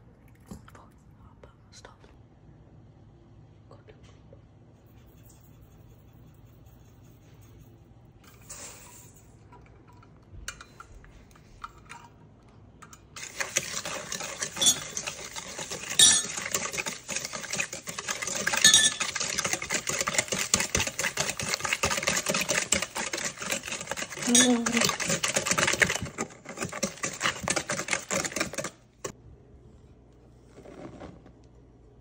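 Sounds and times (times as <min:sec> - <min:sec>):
whisk clinking in metal bowl: 0:12.8 - 0:28.8.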